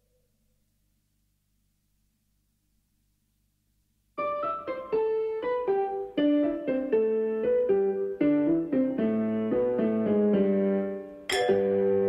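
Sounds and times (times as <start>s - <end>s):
piano music: 4.2s - 12.0s.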